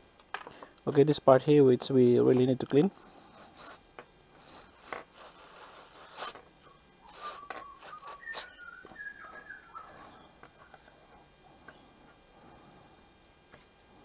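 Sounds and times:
gloved hands rubbing plastic part: 3.0 - 3.8, 4.4 - 6.5, 7.1 - 8.6.

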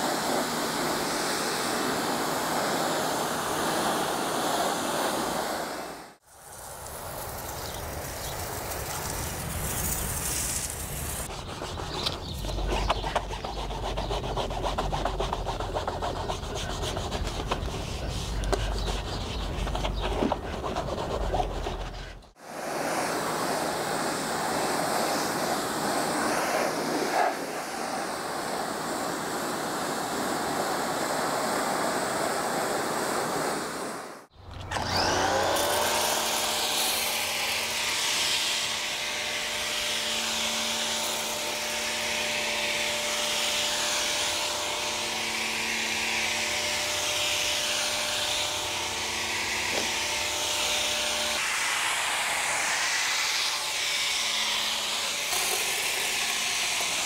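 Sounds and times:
pressure washer spray hissing: 6.4 - 11.3
wash mitt scrubbing: 8.5 - 22.4
pressure washer motor whine: 34.5 - 57.0.

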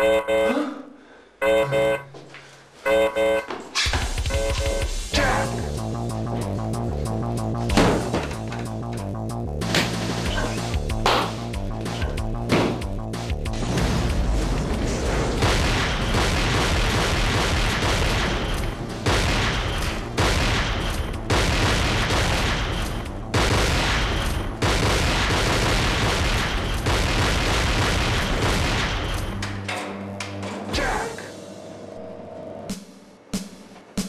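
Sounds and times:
explosion blasts: 13.5 - 29.2
gunfire sound effects: 15.4 - 29.3.

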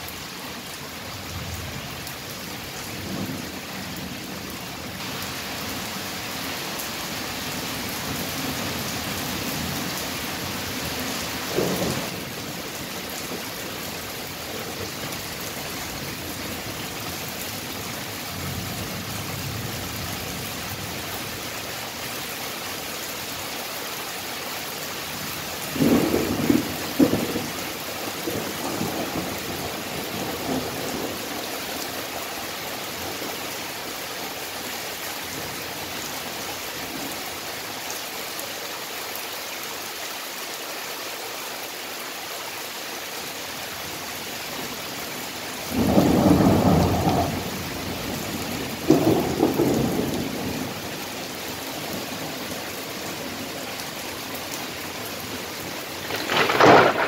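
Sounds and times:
rain hissing: 0.0 - 39.9, 42.9 - 57.0
thunder rumbling: 25.8 - 27.6, 45.7 - 50.8, 55.9 - 57.0.

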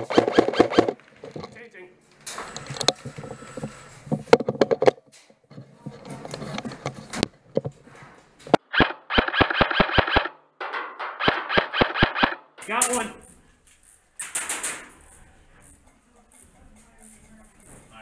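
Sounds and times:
airsoft rifle firing: 0.0 - 1.0, 8.6 - 10.4, 11.1 - 12.6.

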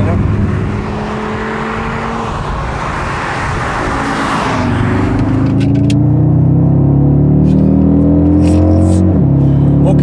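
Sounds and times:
car engine under way: 0.0 - 10.0
tyre and road noise: 0.0 - 10.0.

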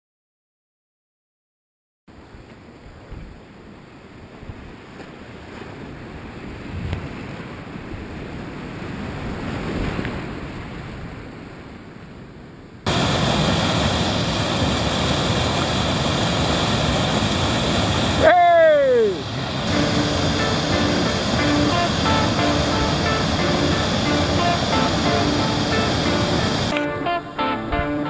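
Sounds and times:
whitewater rapids rushing: 12.9 - 28.0.

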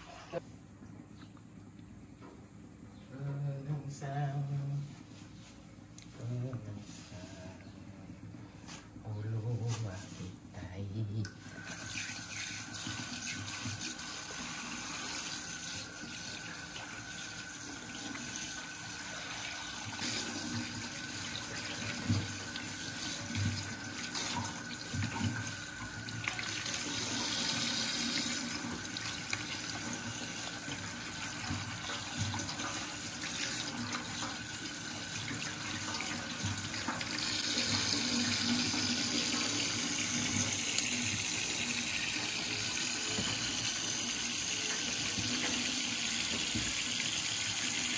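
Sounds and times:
tap running into a sink: 20.0 - 47.9.

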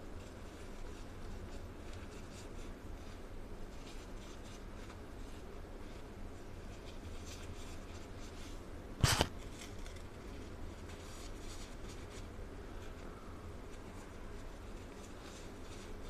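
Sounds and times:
sharp crunch: 9.0 - 9.3.

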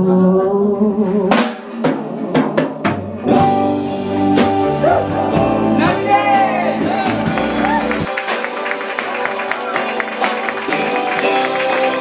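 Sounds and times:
person singing: 0.0 - 2.9
live rock band playing: 0.9 - 12.0.

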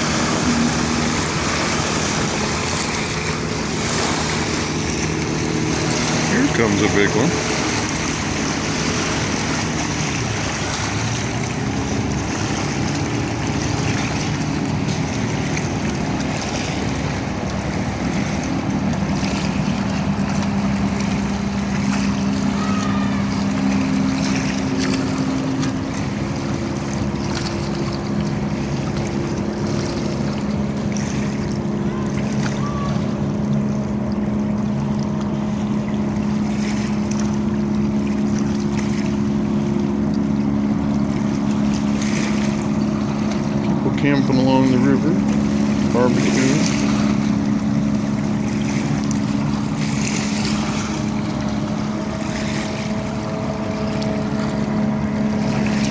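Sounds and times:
motorboat engine droning: 0.0 - 55.9
rushing water: 0.0 - 55.9.

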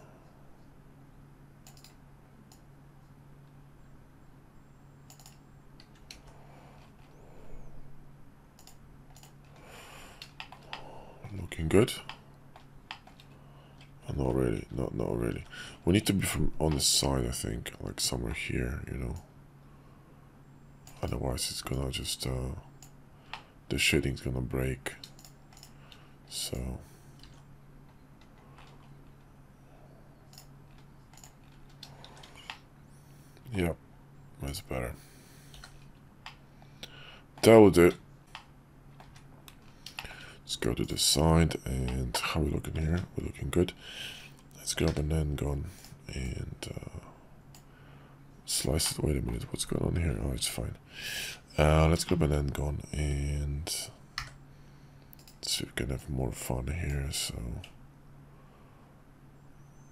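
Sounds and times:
steady low hum: 0.0 - 59.9
keyboard and mouse clicking: 1.6 - 2.6, 5.0 - 7.2, 8.6 - 9.6, 10.2 - 10.9, 12.0 - 14.0, 25.0 - 26.0, 30.3 - 32.7, 37.4 - 40.1
mouse and keyboard clicks: 1.6 - 2.6, 5.1 - 6.3.

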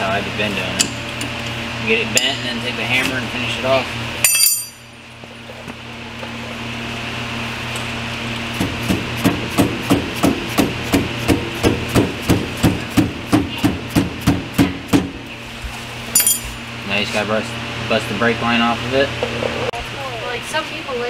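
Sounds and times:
steady low hum: 0.0 - 21.0
hammer striking metal hub: 2.1 - 2.6, 4.2 - 4.9, 16.1 - 16.6.

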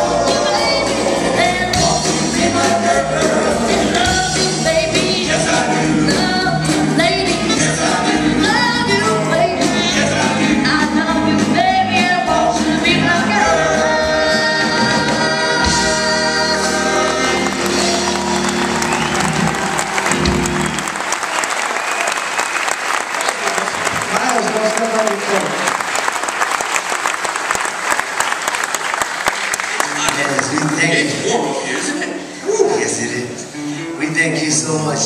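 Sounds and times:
male vocal group singing harmony: 0.0 - 18.6
backing band playing: 0.0 - 25.8, 27.5 - 35.0.

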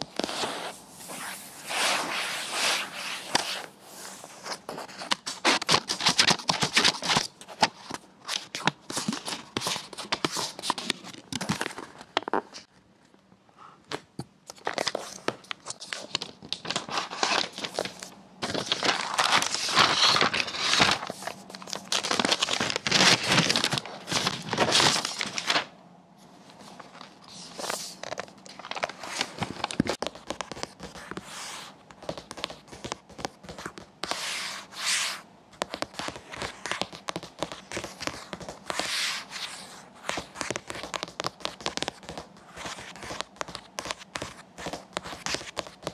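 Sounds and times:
paper wrap crackling and tearing: 14.6 - 25.7, 27.3 - 30.7.

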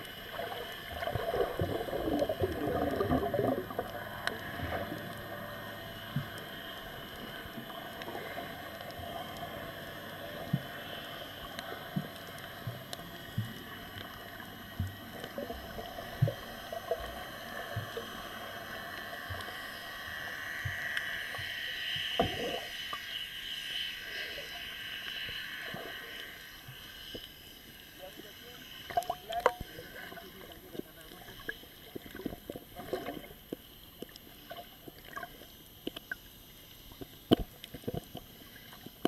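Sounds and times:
water hiss: 13.2 - 29.0.

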